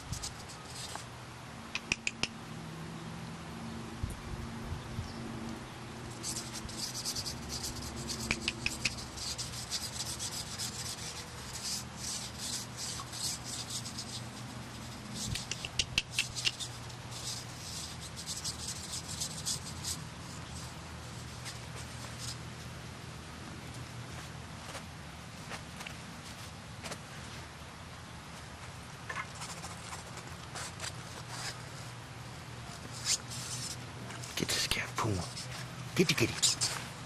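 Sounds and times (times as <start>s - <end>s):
kittens' claws scratching fabric: 0.0s - 1.1s, 6.1s - 22.7s, 29.1s - 32.0s, 32.6s - 36.9s
sharp little clicks: 1.7s - 2.4s, 8.1s - 9.1s, 15.2s - 16.7s.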